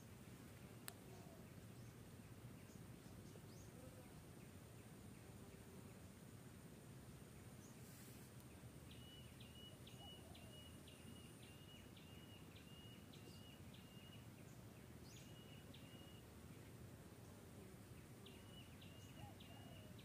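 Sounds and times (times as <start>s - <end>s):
faint background hum: 0.0s - 20.0s
small bird calling: 7.6s - 16.7s, 18.0s - 20.0s.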